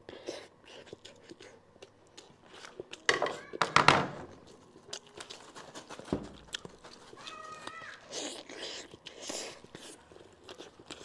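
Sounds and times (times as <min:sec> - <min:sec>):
biting into food: 0:04.4 - 0:11.0.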